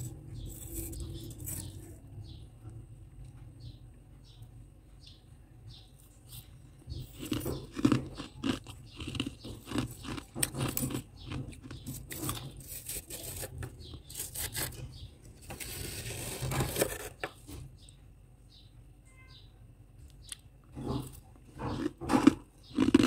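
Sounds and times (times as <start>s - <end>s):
metal spoon scraping frost: 0.0s - 2.0s, 9.8s - 17.3s.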